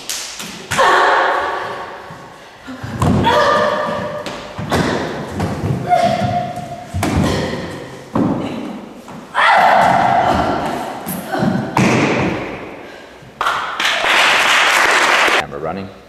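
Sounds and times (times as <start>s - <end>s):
bodies thudding on floor: 2.8s - 12.6s.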